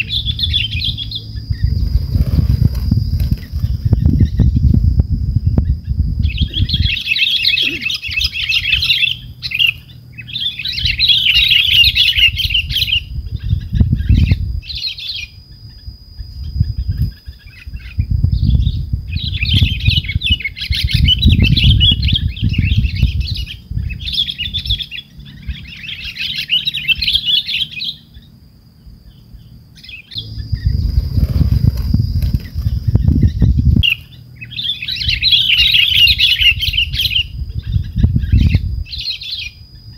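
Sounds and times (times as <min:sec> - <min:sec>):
birds chattering: 0:00.0 - 0:39.9
thin steady high tone: 0:00.0 - 0:39.9
low rumble: 0:30.1 - 0:33.8.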